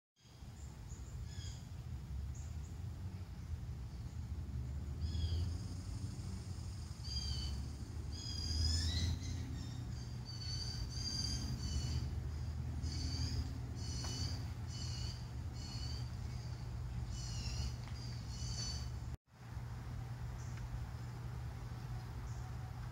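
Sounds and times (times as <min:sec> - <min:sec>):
steady low rumble: 0:00.5 - 0:22.9
birds short high calls: 0:07.0 - 0:19.2.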